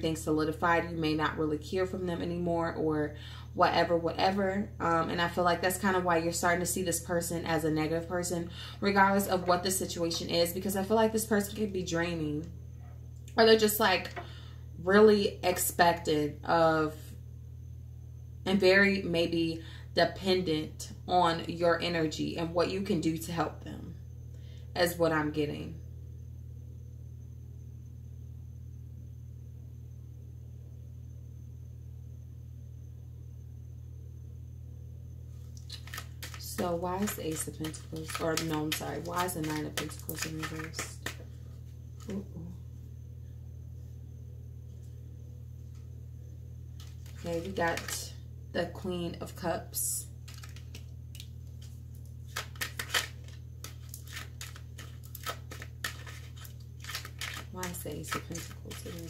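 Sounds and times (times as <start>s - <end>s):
steady low hum: 0.0s - 59.0s
cards being shuffled: 35.6s - 41.2s, 46.8s - 48.0s, 50.2s - 59.0s.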